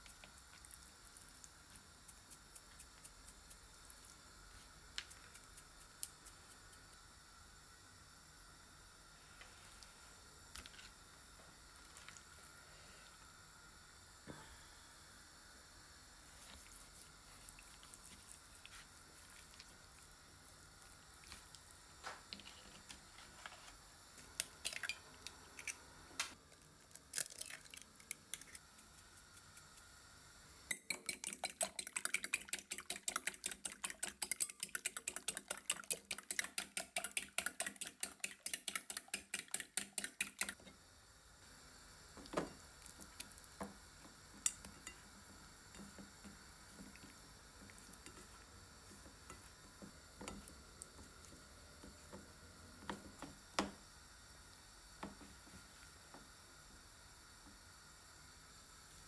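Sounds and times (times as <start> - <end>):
utensil beating eggs in bowl: 0.0 - 7.2, 16.2 - 25.9, 26.5 - 40.8, 42.2 - 53.9.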